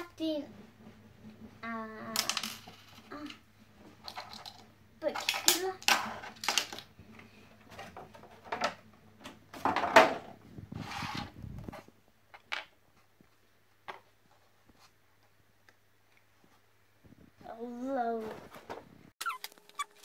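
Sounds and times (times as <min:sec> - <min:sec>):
plastic toys knocking and clicking: 0:02.1 - 0:03.4, 0:04.0 - 0:10.3.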